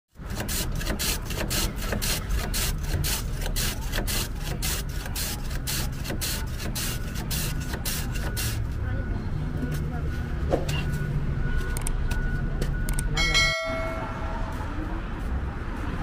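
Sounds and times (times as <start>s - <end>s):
ice rasping on shaving blade: 0.2s - 8.6s.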